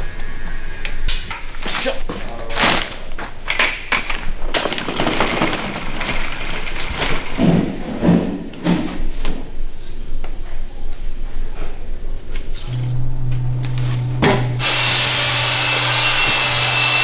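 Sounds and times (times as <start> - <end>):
plastic buckets moved about: 2.5 - 9.1.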